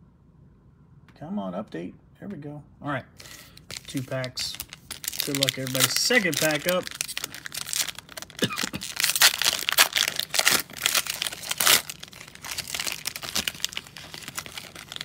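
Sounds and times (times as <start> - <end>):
foil wrapper crinkling and tearing: 3.5 - 15.0.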